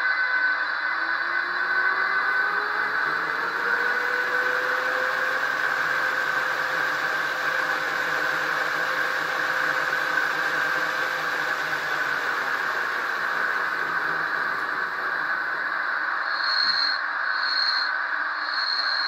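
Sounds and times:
electric motor hum: 0:00.6 - 0:16.3
fan-like hiss: 0:01.2 - 0:16.2.

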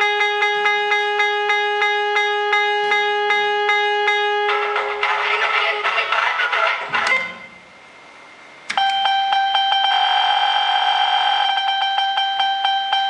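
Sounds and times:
regular electronic clicks: 0:00.0 - 0:05.2, 0:08.6 - 0:13.0
synthesized beep tone: 0:08.8 - 0:13.0.

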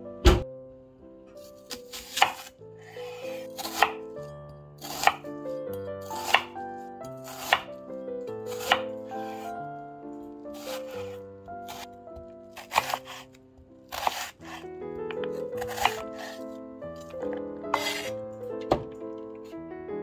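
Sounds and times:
soft background music: 0:00.0 - 0:20.0
knife cutting on a board: 0:01.7 - 0:02.5, 0:03.4 - 0:04.0, 0:04.8 - 0:05.2, 0:06.1 - 0:06.5, 0:07.2 - 0:07.7, 0:08.5 - 0:09.5, 0:10.6 - 0:11.9, 0:12.5 - 0:13.3, 0:13.9 - 0:14.6, 0:15.2 - 0:16.4, 0:17.7 - 0:18.1.

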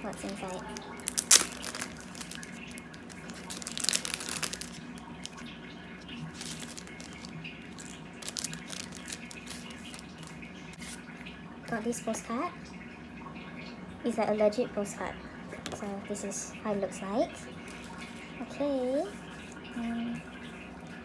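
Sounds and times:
plastic packaging crinkling: 0:00.0 - 0:11.0
fish tank bubbling: 0:00.0 - 0:21.0.

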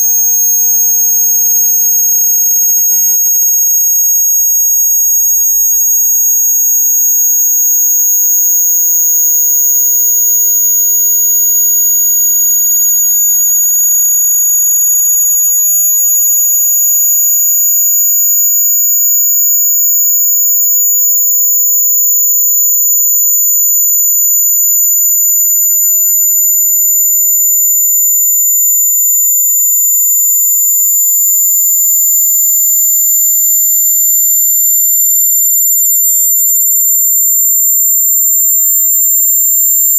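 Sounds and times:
high-pitched rising pure tone: 0:26.0 - 0:38.9.

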